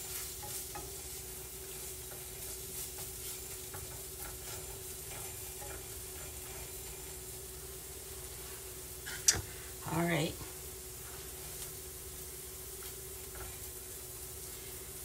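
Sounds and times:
whisk scraping a pan: 0.0 - 9.3
vegetables sizzling in oil: 0.0 - 15.0.

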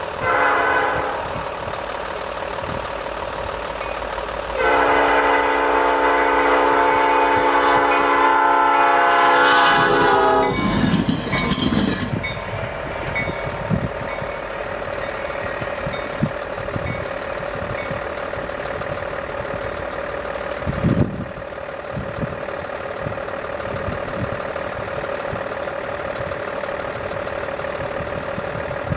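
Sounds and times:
train rumbling: 0.0 - 28.9
locomotive air horn: 0.2 - 1.4, 4.6 - 11.1.

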